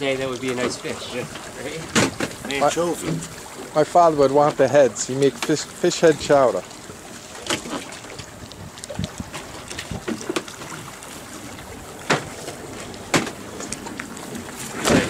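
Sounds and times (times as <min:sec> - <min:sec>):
wind on microphone: 0:07.6 - 0:15.0.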